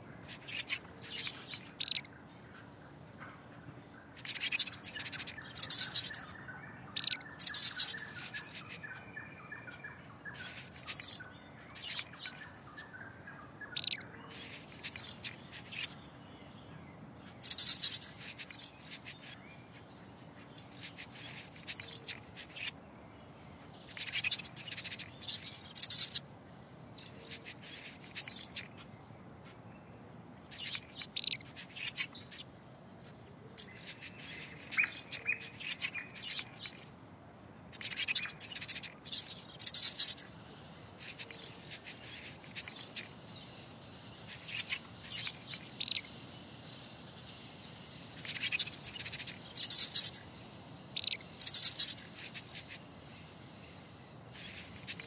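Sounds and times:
mouse squeaks: 0.3s - 2.1s, 4.1s - 12.5s, 13.7s - 15.9s, 17.4s - 19.4s, 20.6s - 22.8s, 23.9s - 26.2s, 27.0s - 28.8s, 30.5s - 32.5s, 33.6s - 36.9s, 37.6s - 40.3s, 41.0s - 43.2s, 44.2s - 46.1s, 48.2s - 50.3s, 50.9s - 52.9s, 54.4s - 55.0s.

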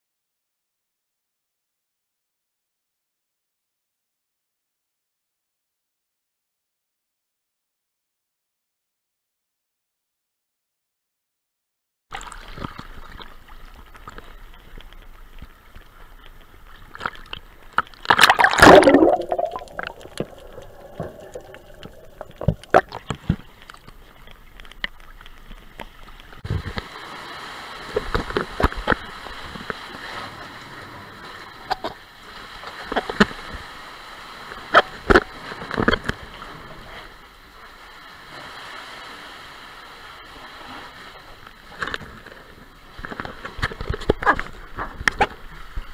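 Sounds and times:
water gurgling: 12.1s - 26.8s
sea water sloshing and splashing: 12.1s - 45.9s.

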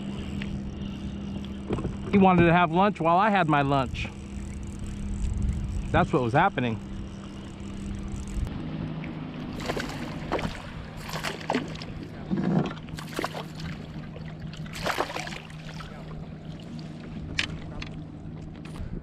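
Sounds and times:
steady low hum: 0.0s - 19.0s
water splashing against kayak hull: 9.5s - 17.9s.

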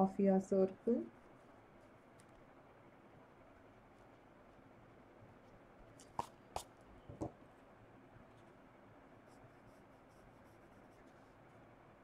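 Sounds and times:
pencil and eraser rubbing on paper: 9.2s - 11.4s.

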